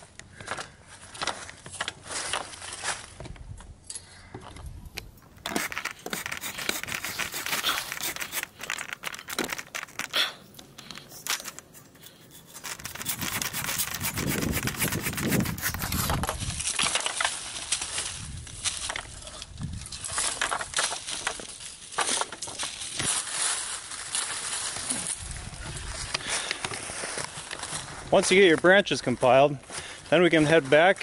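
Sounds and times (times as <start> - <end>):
hand saw rasping through branch: 5.4 - 10.2, 12.0 - 16.4.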